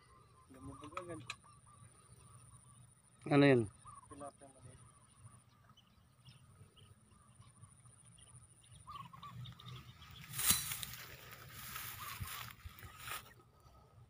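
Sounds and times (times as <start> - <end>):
faint short bird calls: 3.5 - 4.6, 8.8 - 13.4
tall grass rustling: 9.0 - 13.5.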